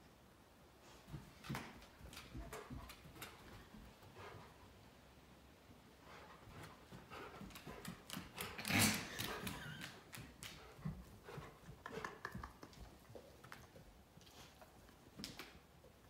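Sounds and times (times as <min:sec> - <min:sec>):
dog claws clicking on hardwood floor: 0:01.4 - 0:03.6, 0:15.1 - 0:15.6.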